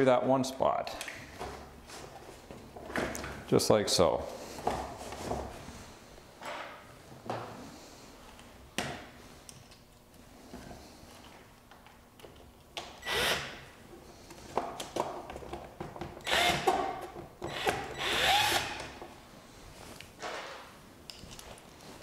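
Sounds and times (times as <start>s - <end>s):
cordless drill driving bolts: 13.0s - 13.6s, 16.2s - 16.8s, 17.5s - 18.9s.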